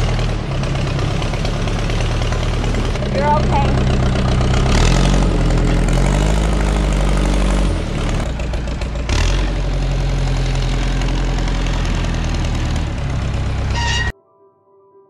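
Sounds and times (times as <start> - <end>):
engine running: 0.0 - 14.1.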